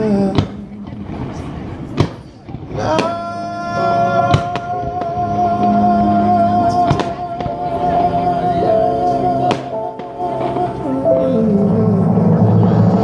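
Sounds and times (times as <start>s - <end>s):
firework bangs: 0.0s - 5.8s, 6.5s - 8.5s, 9.4s - 11.3s
christmas music holding long note: 2.8s - 13.0s.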